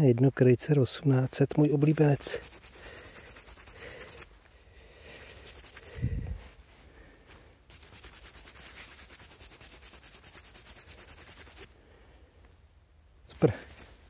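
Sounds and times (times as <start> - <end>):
fingers rubbing dirt off coin: 1.3 - 4.3, 5.2 - 6.0, 7.7 - 11.7, 13.4 - 13.9.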